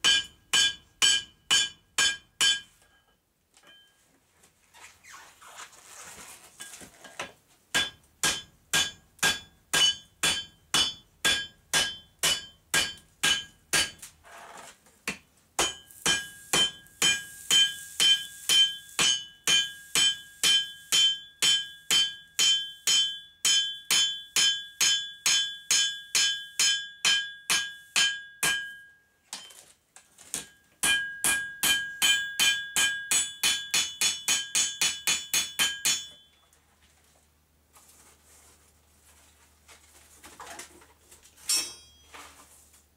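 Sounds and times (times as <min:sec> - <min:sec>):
hammer striking steel on anvil: 0:00.0 - 0:03.9, 0:07.7 - 0:14.1, 0:15.1 - 0:29.5, 0:30.4 - 0:36.4, 0:41.5 - 0:42.1.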